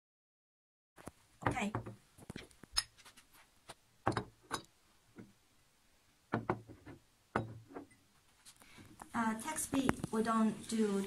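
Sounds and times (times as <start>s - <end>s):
glass tumblers knocking on table: 6.3s - 7.9s.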